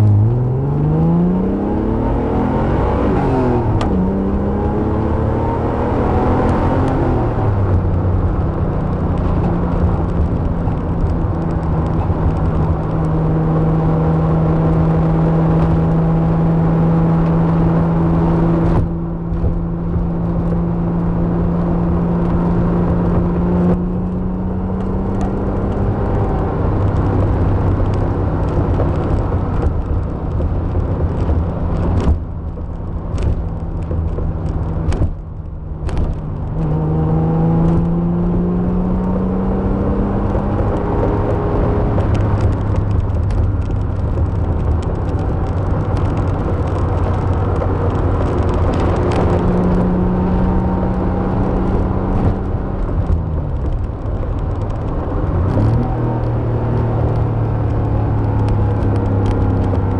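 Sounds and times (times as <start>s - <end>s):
car engine under throttle: 0.0s - 59.9s
road noise: 0.0s - 59.9s.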